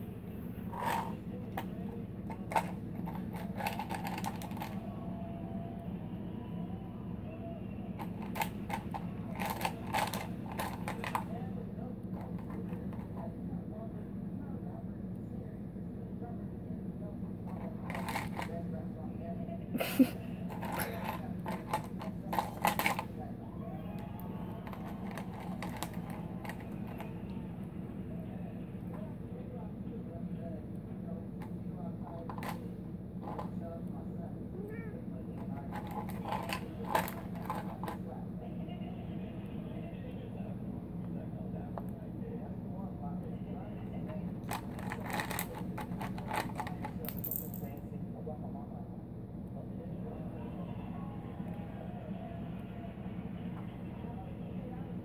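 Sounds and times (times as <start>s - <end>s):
steady low hum: 0.0s - 55.0s
ice cubes rattling in plastic cup: 2.3s - 4.8s, 8.0s - 11.3s, 17.6s - 18.5s, 20.5s - 23.0s, 24.6s - 27.1s, 35.6s - 38.0s, 44.4s - 47.2s.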